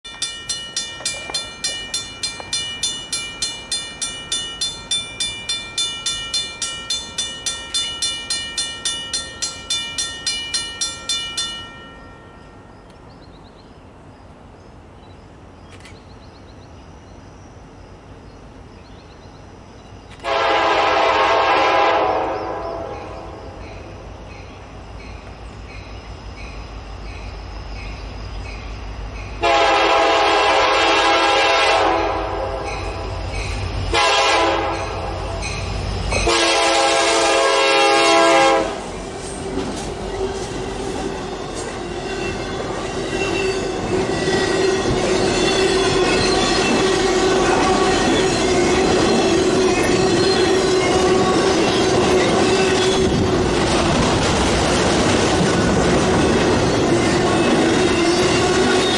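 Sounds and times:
diesel locomotives rumbling: 0.1 - 58.9
train horn blasts: 20.2 - 23.5, 29.4 - 33.1, 33.9 - 35.5, 36.2 - 39.0, 43.5 - 53.2
freight cars rumbling and clattering: 38.9 - 58.9
wheel squeal: 40.1 - 53.2.

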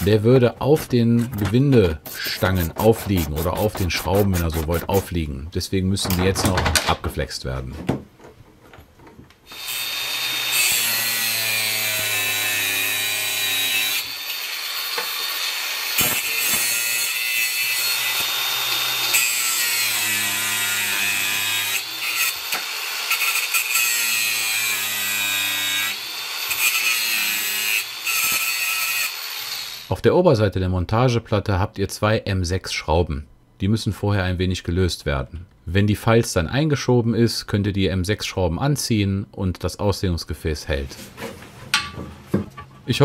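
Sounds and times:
angle grinder cutting steel: 9.5 - 29.9.

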